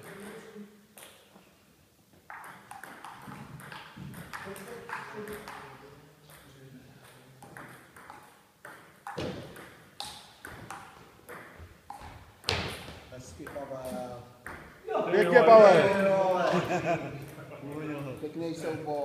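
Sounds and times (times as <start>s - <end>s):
table tennis ball clicking: 7.0s - 12.8s.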